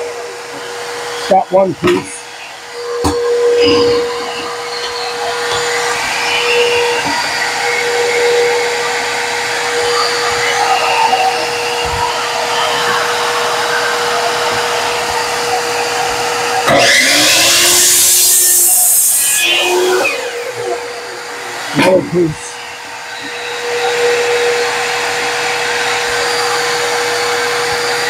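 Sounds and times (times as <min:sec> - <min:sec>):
miter saw motor spinning up: 0:00.0 - 0:28.0
vacuum humming: 0:00.0 - 0:28.0.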